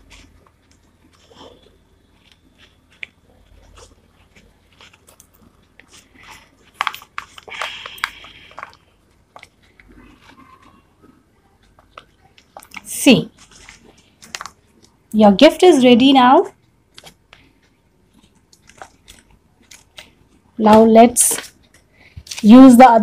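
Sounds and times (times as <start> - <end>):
paper and ribbon crinkling: 0.0 - 10.8, 11.8 - 14.9.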